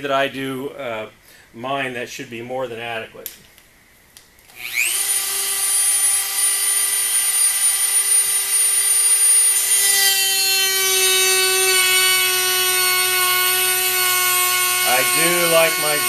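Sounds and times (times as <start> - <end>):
rotary tool whining: 4.5 - 16.0.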